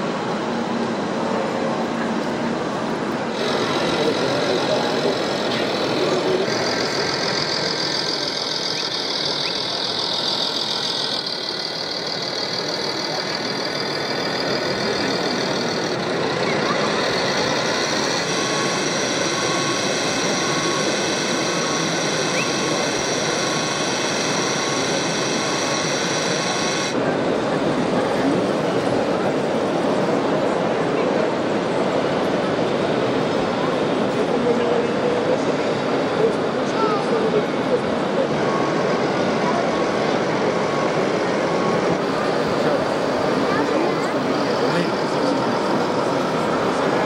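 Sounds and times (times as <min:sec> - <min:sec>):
exhibition hall crowd din: 0:00.0 - 0:47.0
toy truck electronic engine sound: 0:03.3 - 0:27.0, 0:36.8 - 0:47.0
faint beeping: 0:03.4 - 0:27.0, 0:36.8 - 0:47.0.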